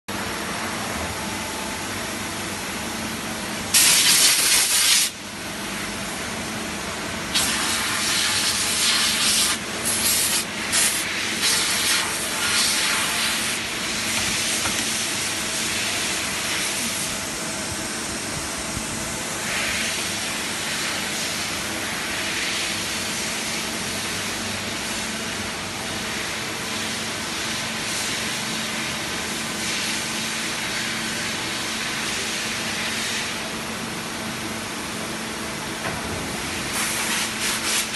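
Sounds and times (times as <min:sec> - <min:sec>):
compressed air gun hissing: 0:03.7 - 0:05.2, 0:07.3 - 0:15.4.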